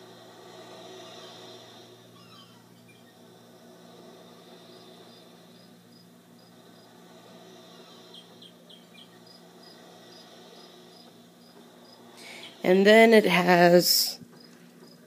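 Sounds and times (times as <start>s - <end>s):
bird chirps: 2.2s - 3.2s, 8.1s - 9.3s.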